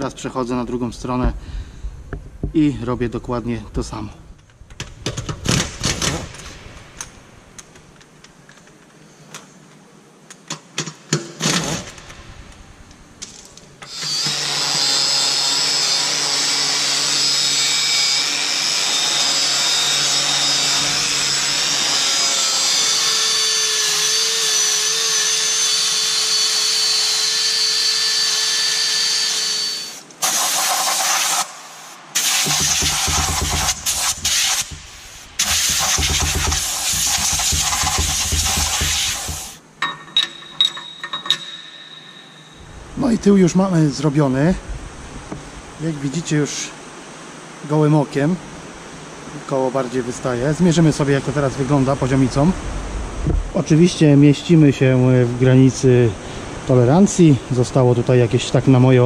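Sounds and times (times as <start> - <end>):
knocks and clicks of parts: 4.4 - 8.9, 32.2 - 41.7
power tool whining: 13.8 - 30.4, 32.2 - 39.6.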